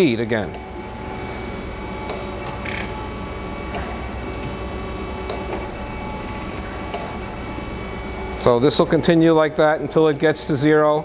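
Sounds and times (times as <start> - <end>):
surface grinder humming: 0.9 - 9.0.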